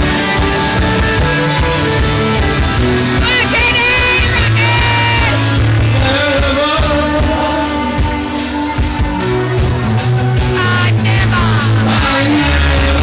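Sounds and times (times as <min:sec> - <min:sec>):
live rock band playing: 0:00.0 - 0:13.0
person singing: 0:03.2 - 0:09.3, 0:10.5 - 0:13.0.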